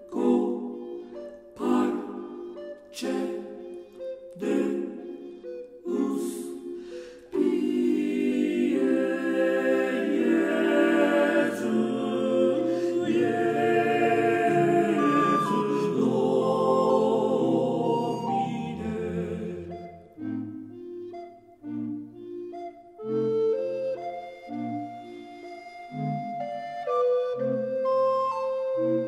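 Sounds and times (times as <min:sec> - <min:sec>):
choir singing in harmony: 0:00.0 - 0:20.8.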